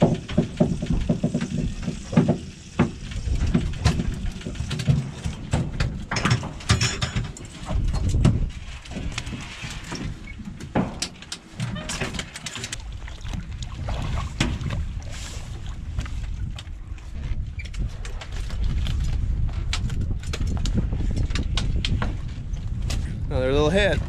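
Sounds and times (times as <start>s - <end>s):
knocks and clatter on metal deck: 0.0s - 12.7s
steady low rumble: 12.8s - 24.0s.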